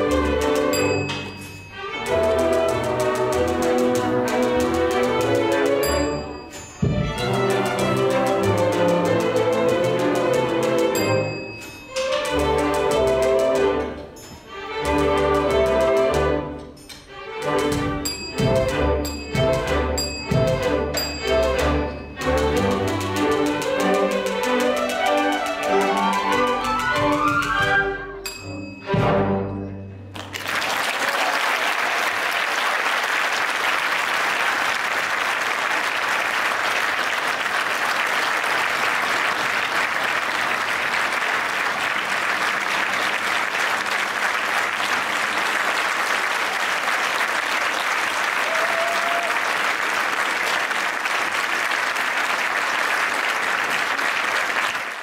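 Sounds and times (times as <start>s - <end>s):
audience applause: 30.1s - 55.0s.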